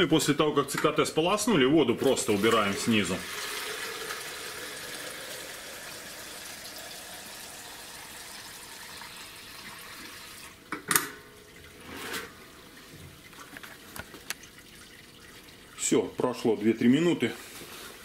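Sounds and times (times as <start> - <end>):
water pouring into plastic jug: 2.0 - 10.6, 12.7 - 18.0.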